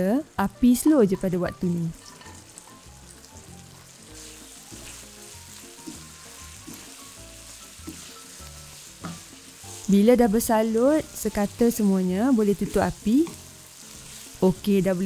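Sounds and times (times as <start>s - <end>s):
sauce sizzling in a wok: 0.0s - 15.0s
soft background music: 0.0s - 15.0s
wooden spatula tossing food: 3.8s - 9.9s, 12.5s - 14.7s.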